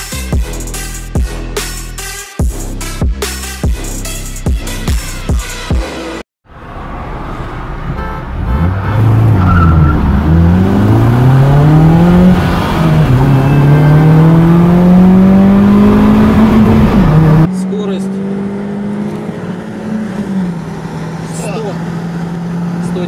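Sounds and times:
car engine accelerating hard: 0:06.6 - 0:23.0.

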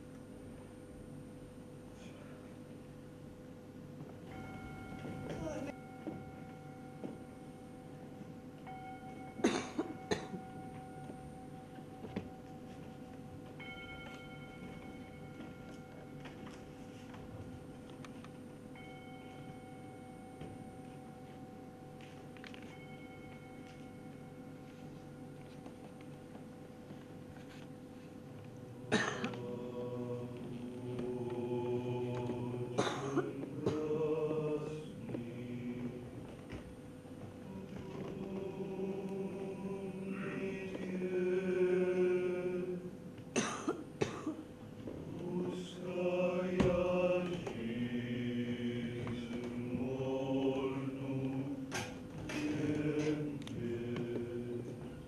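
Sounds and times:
slow chanted singing: 0:00.0 - 0:55.0
slow choral music: 0:00.0 - 0:55.0
people coughing: 0:05.0 - 0:05.8, 0:09.3 - 0:10.6, 0:28.8 - 0:29.6, 0:32.4 - 0:34.2, 0:43.3 - 0:44.6.

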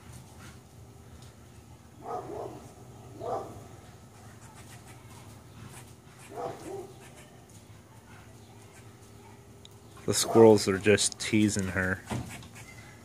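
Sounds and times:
dog barking: 0:02.0 - 0:03.7, 0:06.2 - 0:07.3, 0:08.1 - 0:09.5, 0:10.1 - 0:10.7.

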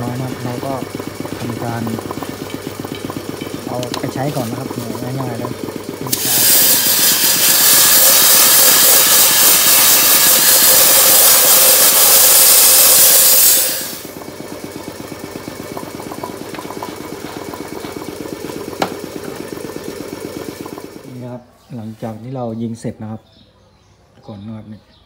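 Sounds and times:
air compressor chugging: 0:00.0 - 0:22.0
sandblaster hiss: 0:06.1 - 0:14.1.

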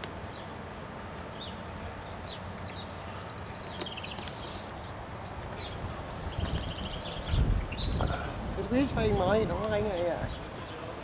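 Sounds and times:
outdoor background noise: 0:00.0 - 0:11.0
songbirds chirping: 0:00.0 - 0:11.0
high bird trill: 0:01.3 - 0:08.9.

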